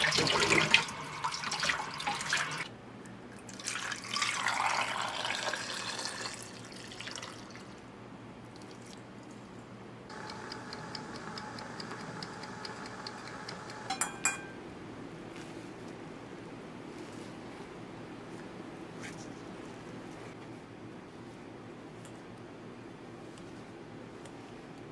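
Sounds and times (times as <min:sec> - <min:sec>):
water pouring into pot: 0:00.0 - 0:02.7, 0:03.5 - 0:07.7
kitchen timer ticking: 0:10.1 - 0:14.6
timer bell ringing: 0:13.9 - 0:14.6.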